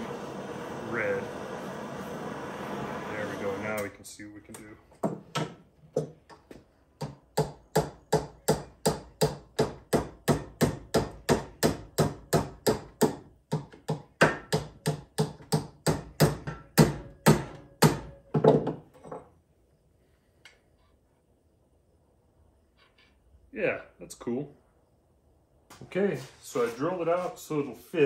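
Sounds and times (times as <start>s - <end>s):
hammer beating hot metal rod: 7.0s - 18.2s.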